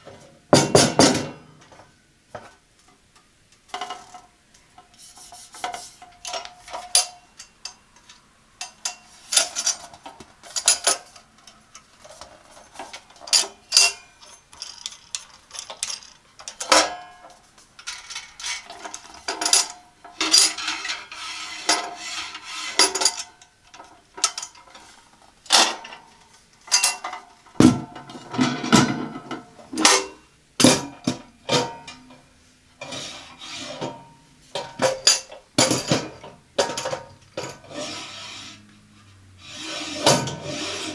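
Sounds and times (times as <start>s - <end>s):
metal tray scraping rattle: 17.8s - 23.3s, 32.8s - 38.6s, 39.4s - 40.9s.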